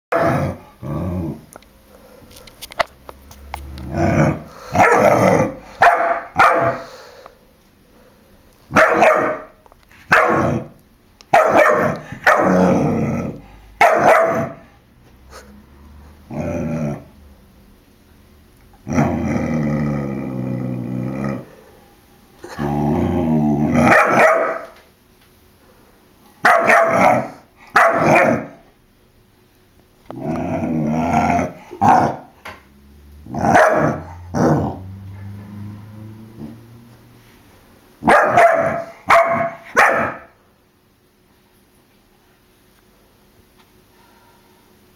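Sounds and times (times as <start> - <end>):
puppy barking: 0.1 - 0.6, 4.8 - 6.9, 8.7 - 10.7, 11.3 - 12.7, 13.8 - 14.6, 23.8 - 24.8, 26.4 - 28.6, 33.3 - 34.7, 38.0 - 40.4
puppy growling: 0.1 - 1.6, 3.3 - 5.8, 11.8 - 13.6, 15.3 - 17.2, 18.7 - 21.8, 22.4 - 24.7, 30.0 - 36.9.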